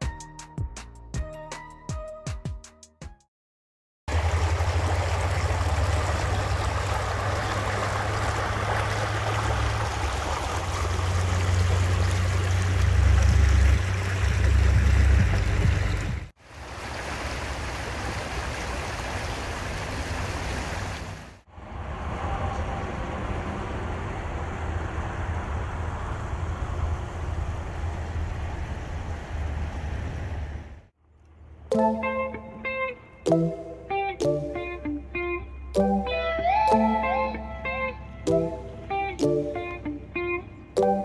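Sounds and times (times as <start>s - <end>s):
creek water splashing over rocks: 4.1s - 21.4s.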